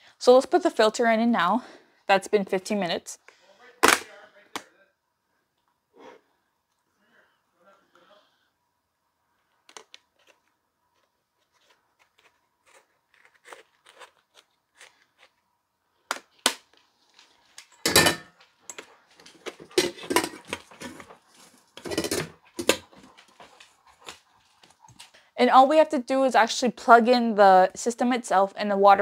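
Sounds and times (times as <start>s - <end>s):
metal lid clattering on steel bowl: 17.9s - 18.3s, 19.7s - 20.5s, 21.8s - 22.4s.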